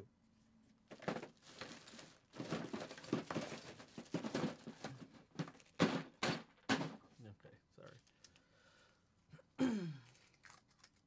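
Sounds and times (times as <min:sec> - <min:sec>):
crafting materials crinkling: 0:10.0 - 0:11.0.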